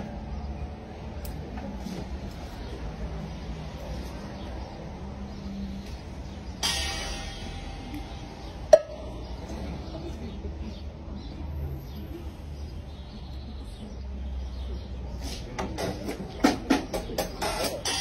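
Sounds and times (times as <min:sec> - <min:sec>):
low street background: 0:00.0 - 0:18.0
ringing cymbal crash: 0:06.6 - 0:08.7.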